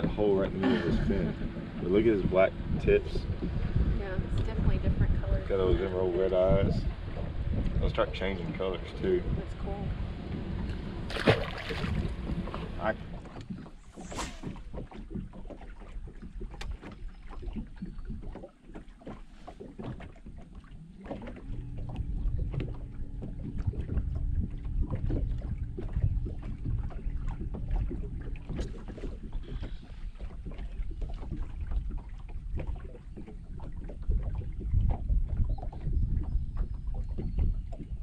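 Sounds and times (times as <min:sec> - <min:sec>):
small waves slapping hull: 0:00.0 - 0:38.0
wind buffeting microphone: 0:00.0 - 0:38.0
steady low hum: 0:20.6 - 0:32.8.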